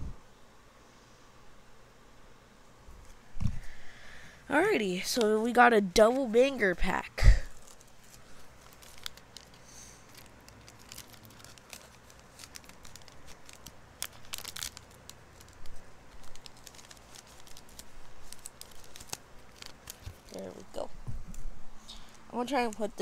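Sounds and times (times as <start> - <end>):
card packaging crinkling: 7.5 - 20.9, 21.9 - 23.0.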